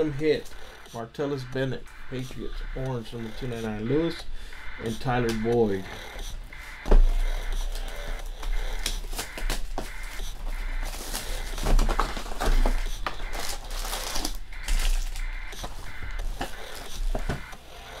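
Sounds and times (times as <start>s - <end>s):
shrink wrap crinkling: 8.8s - 17.2s.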